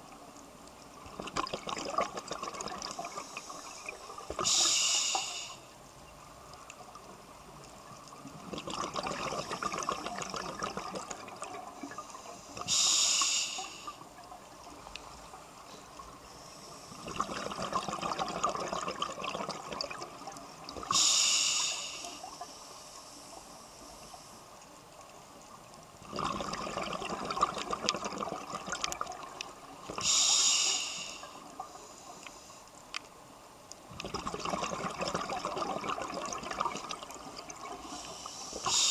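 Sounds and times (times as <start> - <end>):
bubbling exhalation: 1.1 - 3.2, 8.4 - 11.6, 17.0 - 20.1, 26.1 - 29.1, 34.0 - 37.2
regulator inhalation hiss: 3.0 - 5.8, 12.1 - 14.1, 20.9 - 24.5, 30.0 - 32.8, 37.8 - 38.9.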